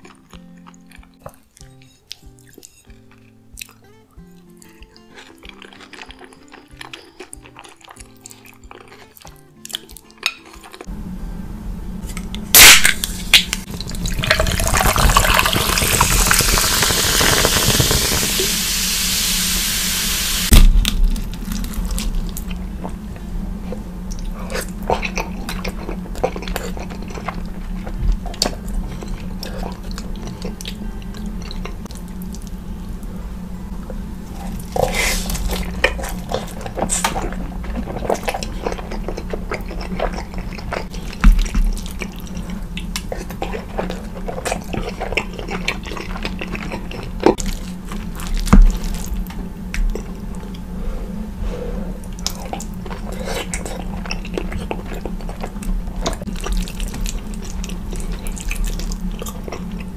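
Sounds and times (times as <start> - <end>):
wet chewing and lip smacking: 0.0 - 10.9, 24.1 - 32.6, 34.5 - 50.7, 52.0 - 59.9
steady low hum: 10.6 - 59.9.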